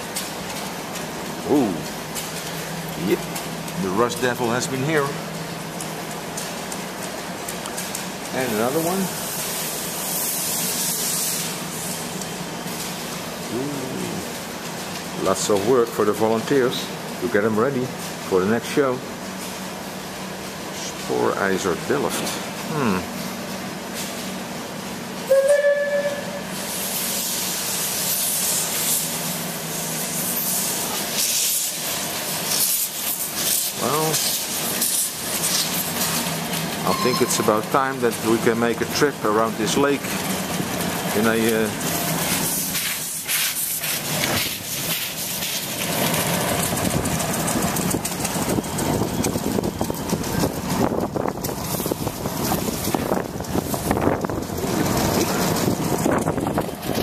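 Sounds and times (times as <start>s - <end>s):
steam hissing: 8.0s - 23.3s, 25.2s - 57.0s
steam locomotive whistle: 25.3s - 26.6s, 36.9s - 37.4s.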